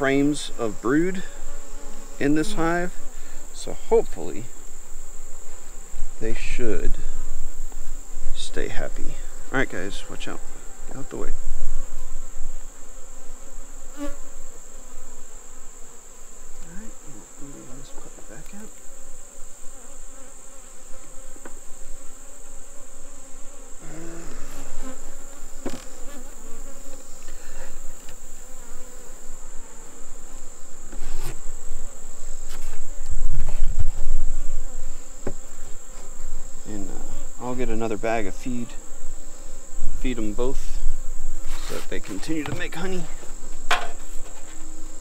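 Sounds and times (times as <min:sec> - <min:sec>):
honeybees buzzing: 0:00.0 - 0:45.0
wooden knocks of hive boxes: 0:20.9 - 0:21.7, 0:24.5 - 0:26.2, 0:35.2 - 0:36.1, 0:41.8 - 0:44.8.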